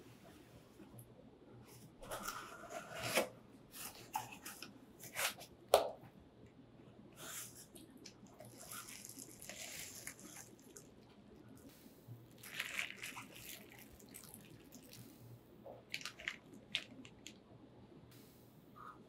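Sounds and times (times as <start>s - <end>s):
bubble wrap crinkling: 8.4s - 11.0s, 12.3s - 15.0s, 15.8s - 17.4s.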